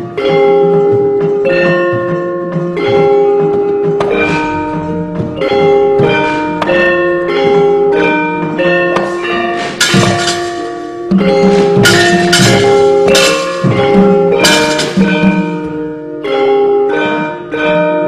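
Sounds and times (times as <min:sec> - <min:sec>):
metallophones striking a melody: 0:00.0 - 0:18.0
sharp percussive strokes: 0:09.0 - 0:15.7.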